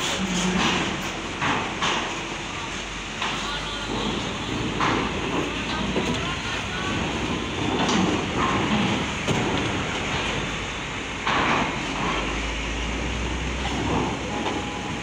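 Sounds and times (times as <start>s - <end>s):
diesel truck engines running: 0.0s - 15.0s
tyres rumbling over steel deck: 0.0s - 15.0s
sharp knocks: 11.2s - 12.5s.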